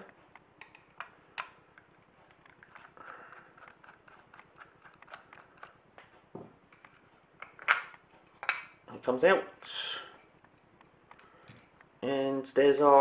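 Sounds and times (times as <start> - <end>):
screwdriver clicks and scrapes: 2.3 - 5.8.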